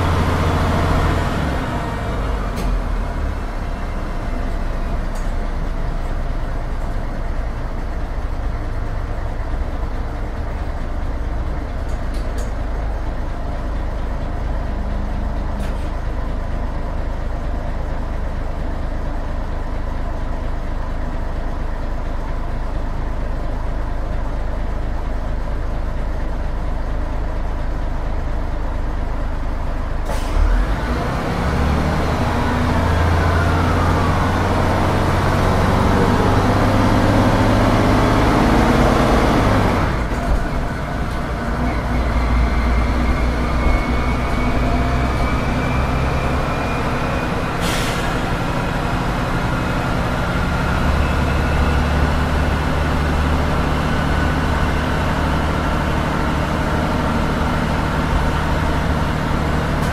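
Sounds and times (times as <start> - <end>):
diesel bus engine humming: 0.0 - 59.9
rising engine whine: 29.1 - 59.9.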